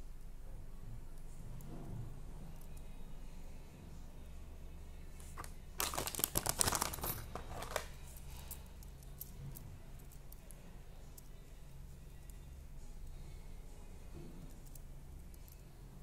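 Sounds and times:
plastic packaging crinkling: 5.4 - 7.9.

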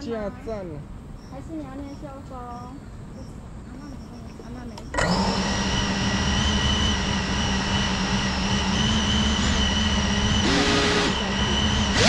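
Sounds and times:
drone motors idling: 3.9 - 12.0.

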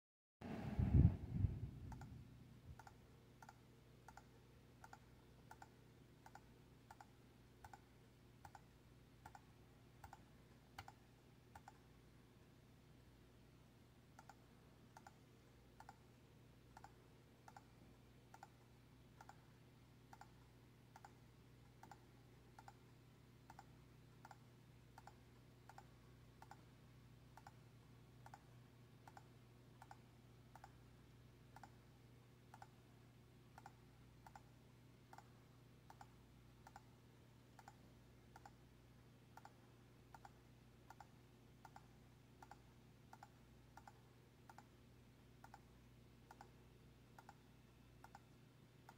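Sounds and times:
low electrical hum: 0.4 - 48.9
computer mouse clicks: 1.9 - 11.9, 14.1 - 15.2, 15.8 - 16.1, 16.7 - 17.7, 18.3 - 19.5, 20.1 - 22.9, 23.5 - 26.7, 27.3 - 27.6, 28.2 - 30.8, 31.5 - 31.8, 32.5 - 32.8, 33.5 - 34.5, 35.1 - 36.9, 37.5 - 38.6, 39.3 - 44.8, 45.4 - 48.9.

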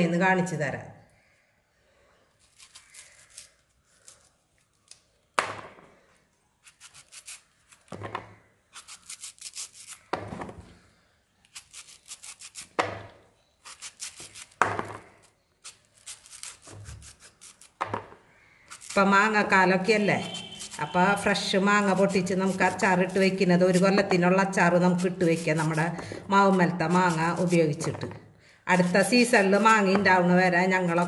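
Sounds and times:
knife cutting mango: 6.6 - 10.3, 11.4 - 17.9, 18.7 - 19.4, 20.0 - 28.1, 28.7 - 31.0.

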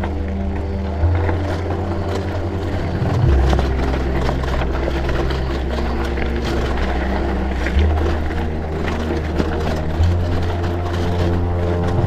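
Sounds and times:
heavy bass line: 0.0 - 12.0.

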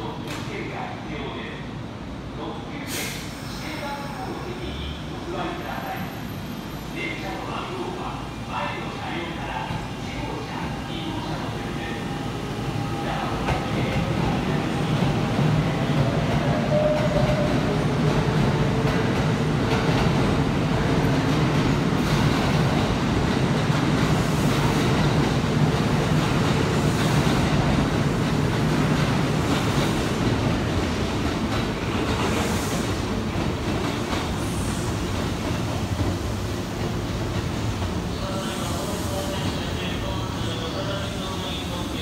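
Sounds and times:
electric train rumbling past: 7.8 - 42.0.

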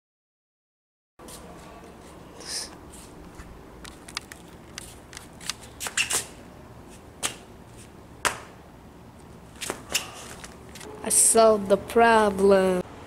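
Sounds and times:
camera handling taps and scuffs: 3.8 - 6.3, 9.6 - 10.9.

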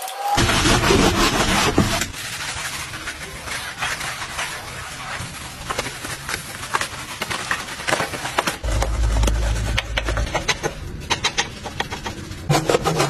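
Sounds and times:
brush scrubbing wheel: 0.4 - 13.0
deep low sound: 8.6 - 10.8.

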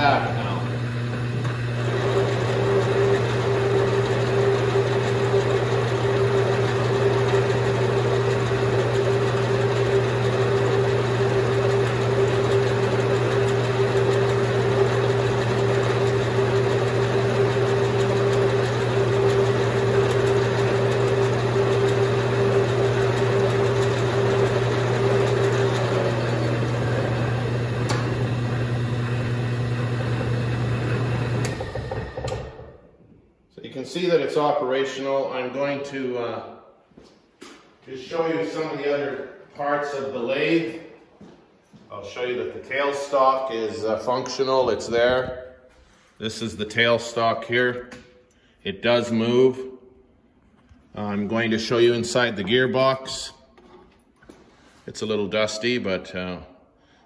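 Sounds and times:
lathe motor hum: 0.0 - 33.0.

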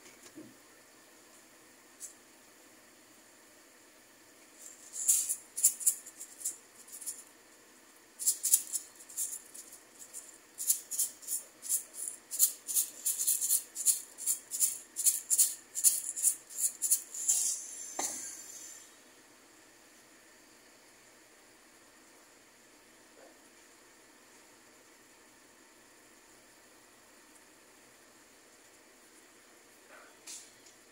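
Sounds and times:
salt rattling in shaker: 4.6 - 7.3, 8.2 - 17.6.

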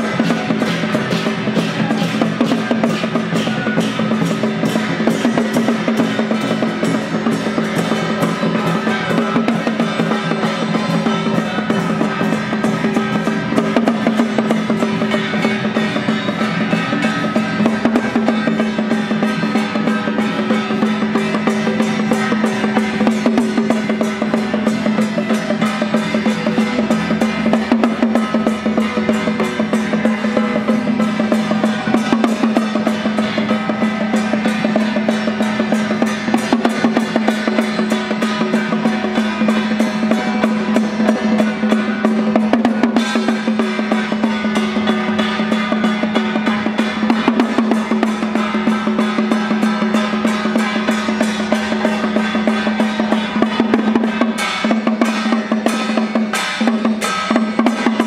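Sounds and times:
handheld gongs ringing: 0.0 - 58.0
small drum beaten fast: 0.0 - 58.0.

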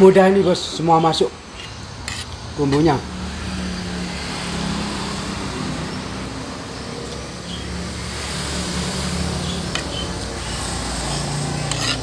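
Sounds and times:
traffic noise: 0.0 - 12.0
vehicle engine rumble: 0.0 - 12.0.

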